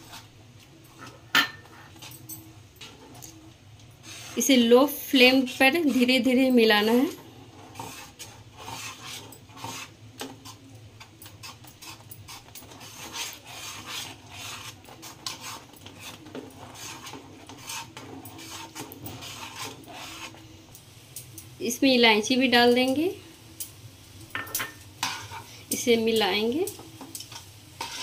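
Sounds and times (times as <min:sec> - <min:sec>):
spatula scraping a pan: 0:04.0 - 0:04.6, 0:05.2 - 0:20.5, 0:24.4 - 0:25.7, 0:27.0 - 0:28.0.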